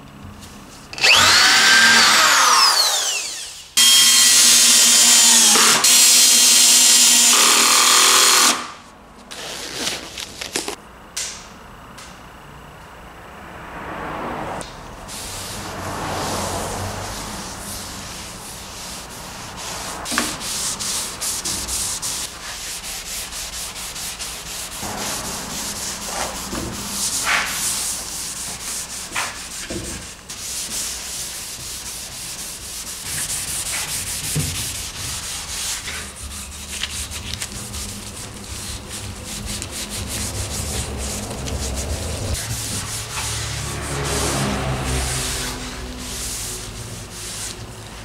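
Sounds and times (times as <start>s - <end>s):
cloth wiping wood: 15.1s - 48.0s.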